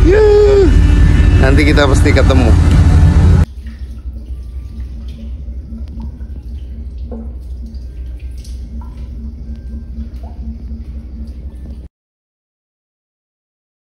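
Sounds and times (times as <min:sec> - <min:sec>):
low machinery hum: 0:00.0 - 0:11.9
faint water drips: 0:03.4 - 0:11.9.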